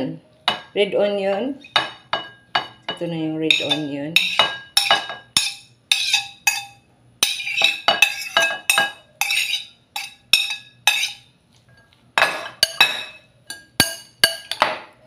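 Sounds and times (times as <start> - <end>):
fork clinking on plate and glass: 3.5 - 11.2, 11.8 - 14.9.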